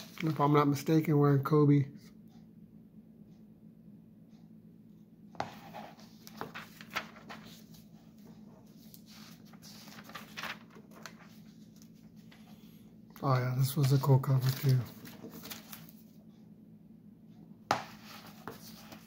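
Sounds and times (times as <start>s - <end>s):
magazine pages rustling: 0.0s - 0.6s, 5.4s - 12.6s, 13.2s - 16.1s, 17.7s - 19.0s.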